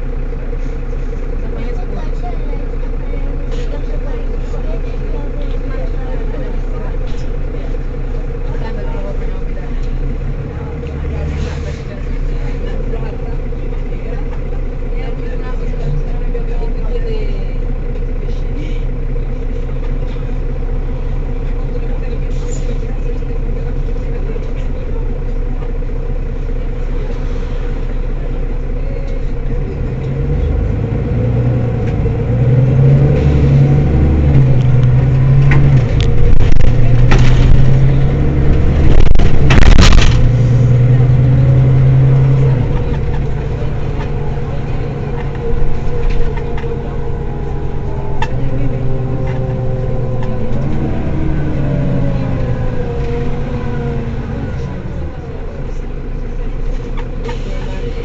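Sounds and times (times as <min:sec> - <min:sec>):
bus diesel engine accelerating: 0:00.0 - 0:58.0.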